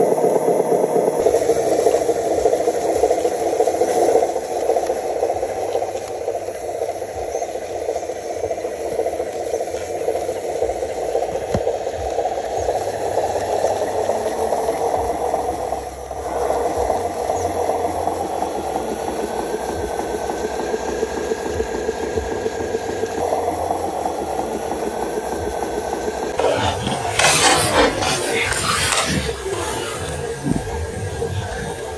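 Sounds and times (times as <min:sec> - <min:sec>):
toy truck motor whirring: 0:26.4 - 0:30.6.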